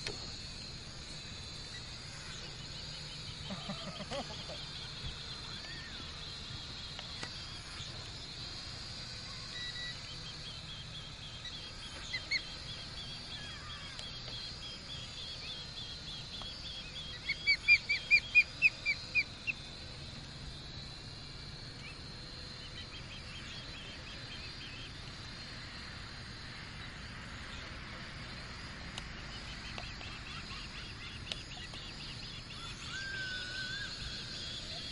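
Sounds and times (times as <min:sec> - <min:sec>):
osprey chirping: 0:00.6 - 0:19.8.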